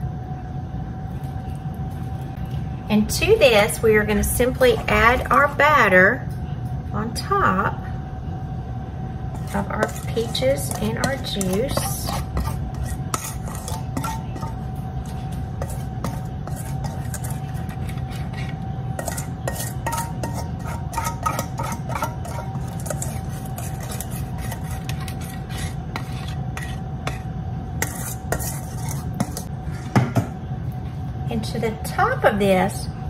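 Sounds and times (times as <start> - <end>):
steady low hum: 0.0 - 33.0
utensil scraping metal bowl: 9.3 - 29.5.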